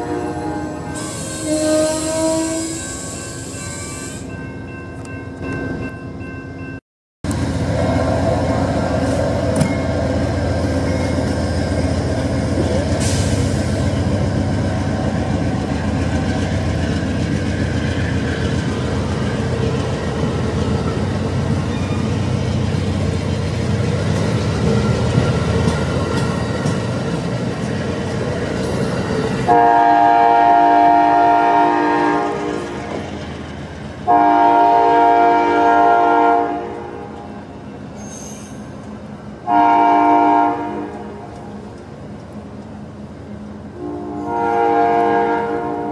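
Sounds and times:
train air horn blasts: 0.0 - 4.2, 29.4 - 32.7, 34.1 - 37.3, 39.4 - 41.5, 43.8 - 45.9
train wheels rumbling and rattling: 7.3 - 35.3, 40.7 - 45.9.

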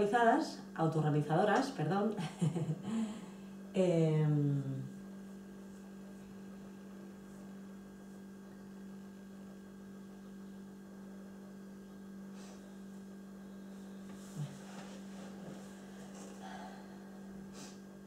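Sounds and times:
low electrical hum: 0.0 - 18.0
faint breaths: 12.3 - 17.9.

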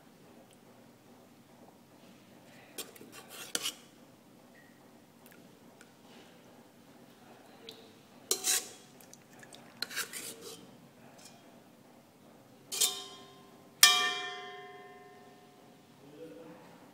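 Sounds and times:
spoon scraping steel bowl: 2.8 - 3.8, 8.3 - 8.9, 9.8 - 11.4, 12.7 - 13.4
spoon striking ringing bowl: 12.8 - 15.5.

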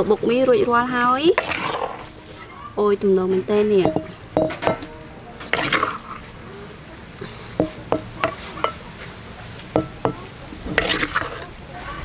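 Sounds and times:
wooden spoon scraping mortar: 1.4 - 2.4, 9.8 - 11.5
spoon tapping dishes: 3.8 - 4.9, 7.6 - 8.8, 9.8 - 10.2.

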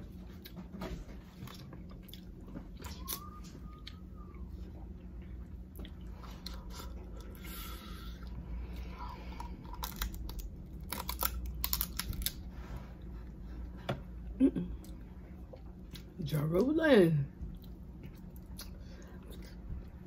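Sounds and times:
food being chewed: 0.0 - 13.7, 17.4 - 20.0
low steady hum: 0.0 - 20.0
crab shell cracking: 9.7 - 12.4.

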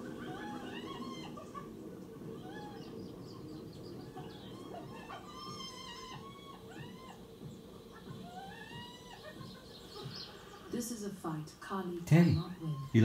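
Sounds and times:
mewing animal cry: 0.0 - 11.0, 12.2 - 13.0
bird chirps and calls: 0.0 - 11.1.

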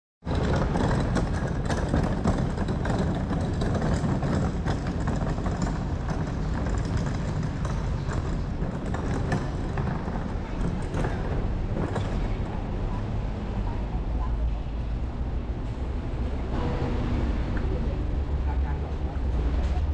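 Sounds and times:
handling knocks and clicks: 0.3 - 12.7.

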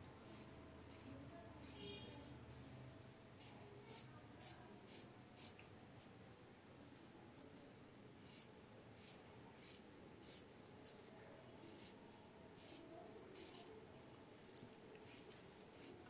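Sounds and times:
shears snipping fabric: 0.3 - 1.9, 13.4 - 13.7.

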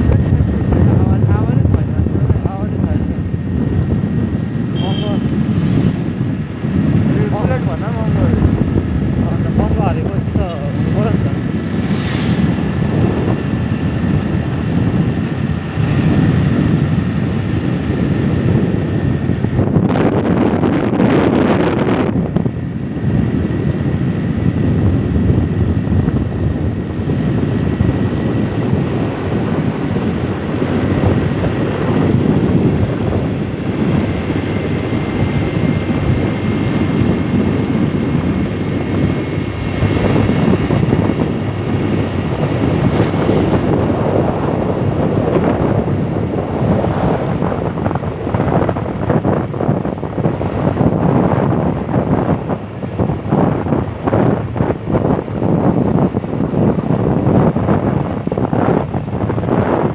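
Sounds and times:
motorcycle engine and road noise: 0.0 - 59.9
wind rushing over microphone: 0.0 - 59.9.

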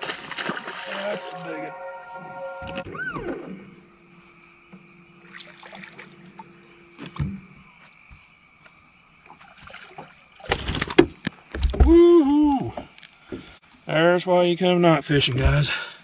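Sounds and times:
fish splashing: 0.0 - 1.6, 5.2 - 6.3
night insects: 0.0 - 16.0.

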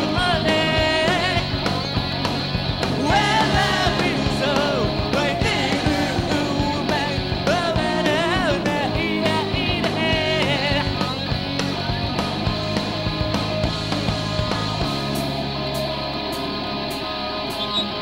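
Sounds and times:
person singing: 0.0 - 1.7, 3.0 - 11.2
rock band playing live: 0.0 - 18.0.

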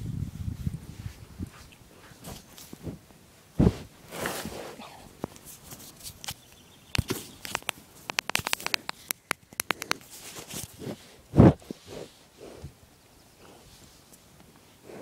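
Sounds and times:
phone handling clicks and taps: 6.2 - 10.0.

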